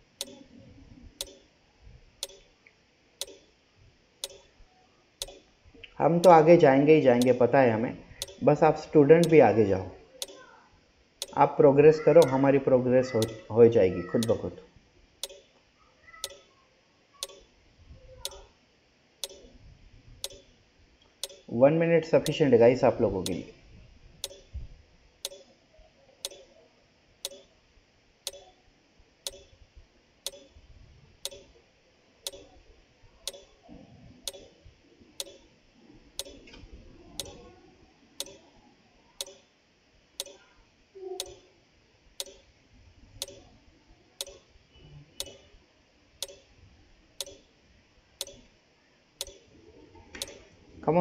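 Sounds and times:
clock ticking: 0.0 - 0.4, 1.2 - 1.4, 2.2 - 2.5, 3.2 - 3.5, 4.2 - 4.5, 5.2 - 5.4, 6.2 - 6.5, 7.2 - 7.4, 8.2 - 8.5, 9.2 - 9.4, 10.2 - 10.4, 11.2 - 11.5, 12.2 - 12.4, 13.1 - 13.5, 14.2 - 14.4, 15.2 - 15.5, 17.2 - 17.4, 18.2 - 18.4, 19.2 - 19.5, 20.2 - 20.5, 21.2 - 21.5, 22.2 - 22.4, 23.2 - 23.5, 24.2 - 24.5, 25.2 - 25.5, 26.2 - 26.5, 27.2 - 27.5, 28.3 - 28.5, 29.3 - 29.5, 30.3 - 30.6, 31.2 - 31.5, 32.3 - 32.5, 33.2 - 33.5, 34.3 - 34.5, 35.2 - 35.4, 36.2 - 36.4, 38.2 - 38.4, 39.2 - 39.4, 40.2 - 40.4, 41.2 - 41.4, 42.2 - 42.4, 43.2 - 43.4, 44.2 - 44.4, 46.2 - 46.4, 47.2 - 47.4, 48.2 - 48.4, 49.2 - 49.4.

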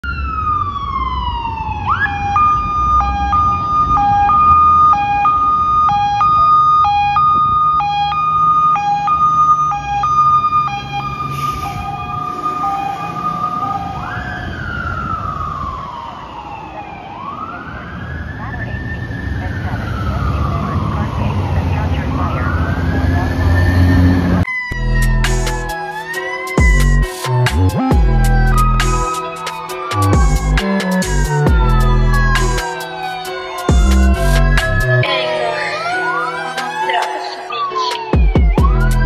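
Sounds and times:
fire engine siren: 0.0 - 39.0
engine rumble: 30.0 - 32.6.

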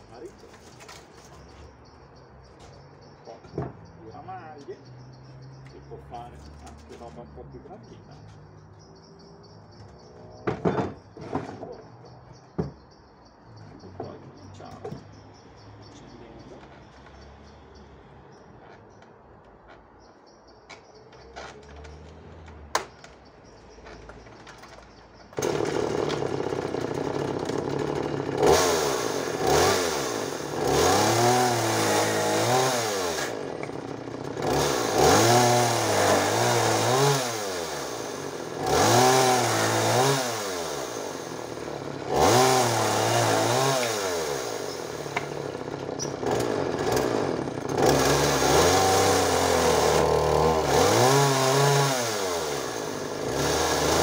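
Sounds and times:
chainsaw revving and cutting: 25.4 - 54.0.

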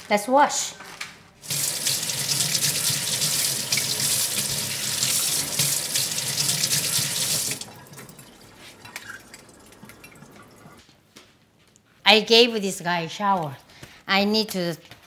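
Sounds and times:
tap water splashing into sink: 1.5 - 10.8.

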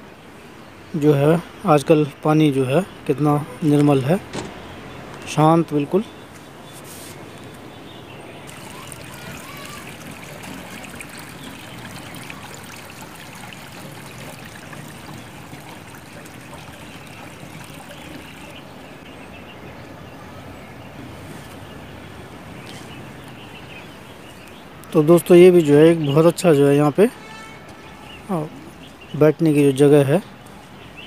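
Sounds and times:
river flowing: 8.3 - 19.0.

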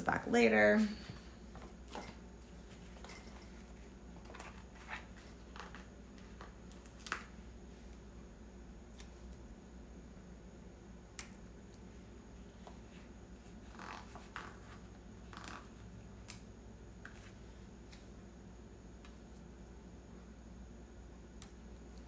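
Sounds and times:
paper rustling: 1.6 - 7.2.

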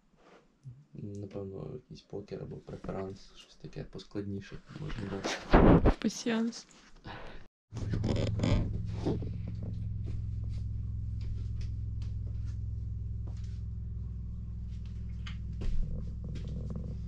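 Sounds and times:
steady low hum: 7.7 - 17.0.

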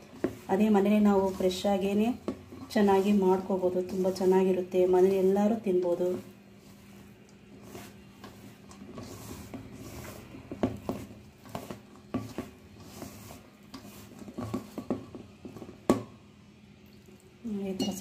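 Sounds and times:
hand squelching through wet batter: 5.9 - 15.9.

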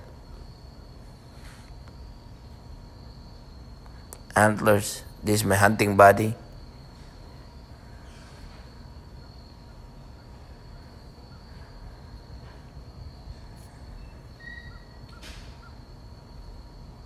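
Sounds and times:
high insect drone: 0.0 - 17.0
bird chirps: 13.8 - 15.8.

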